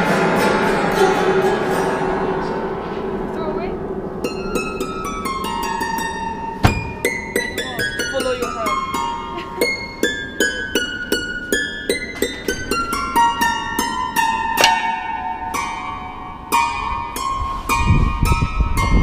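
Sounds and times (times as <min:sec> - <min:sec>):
solo piano notes: 0:05.5 - 0:09.2.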